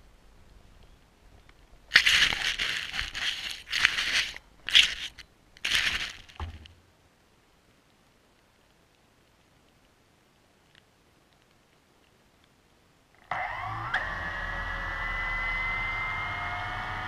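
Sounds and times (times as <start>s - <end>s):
grass scraping camera housing: 1.9s - 6.7s.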